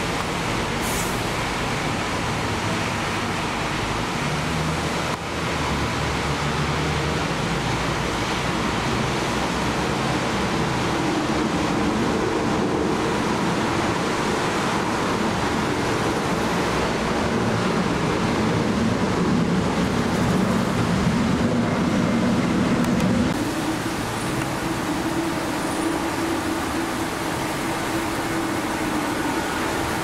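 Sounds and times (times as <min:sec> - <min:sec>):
jet engines roaring: 0:08.6 - 0:30.0.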